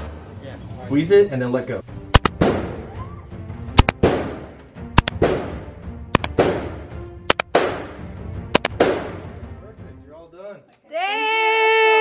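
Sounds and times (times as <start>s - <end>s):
rifle shots echoing indoors: 6.2s - 9.3s.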